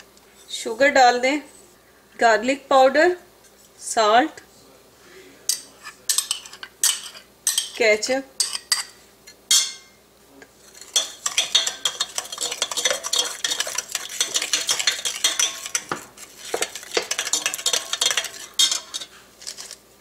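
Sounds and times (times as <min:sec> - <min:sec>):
metal spoon clinking in glass bowl: 0:05.5 - 0:07.8, 0:08.4 - 0:10.0, 0:10.8 - 0:19.8.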